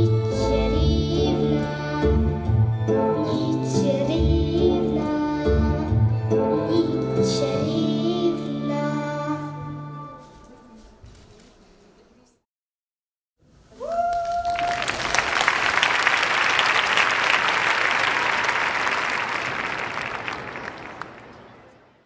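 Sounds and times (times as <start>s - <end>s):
person cheering: 13.7s - 15.2s
audience applauding: 13.9s - 21.8s.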